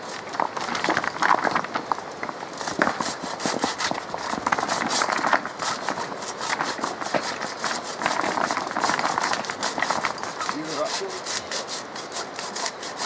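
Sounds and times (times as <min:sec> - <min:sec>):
rocks clattering: 0:00.0 - 0:10.8
rustling branches: 0:00.0 - 0:13.0
hand saw rasping: 0:02.6 - 0:13.0.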